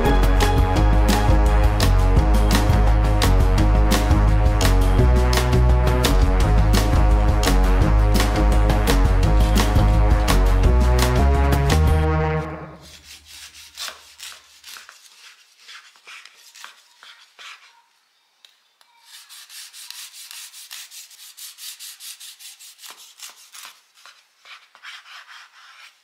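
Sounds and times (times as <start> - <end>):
background music: 0.0 - 12.9
knife sawing through bread: 12.8 - 17.8, 19.0 - 26.0.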